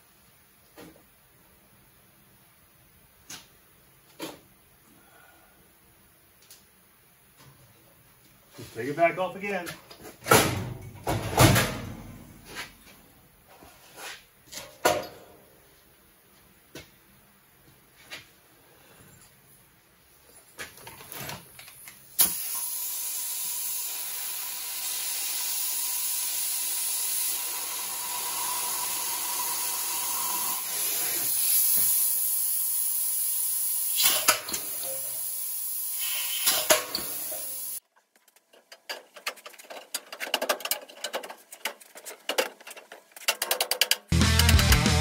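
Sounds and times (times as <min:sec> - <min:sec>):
pneumatic tool hissing: 0:22.2 - 0:37.8.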